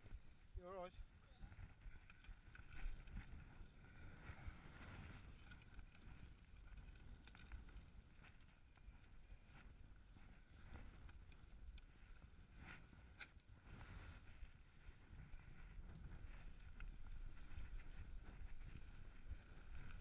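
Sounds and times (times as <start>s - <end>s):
wind rumble on microphone: 0.0s - 20.0s
bike chain clicks: 1.8s - 3.3s, 5.0s - 9.2s.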